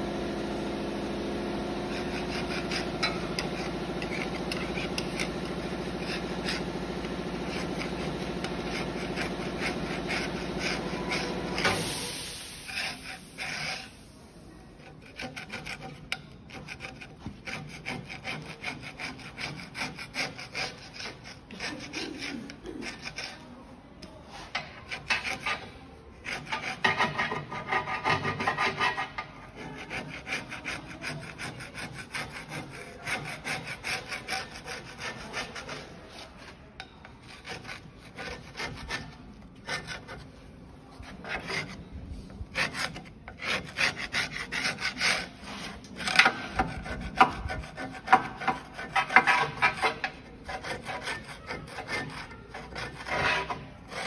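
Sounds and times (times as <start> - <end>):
hand scrubbing fluted roll: 24.2 - 54.0.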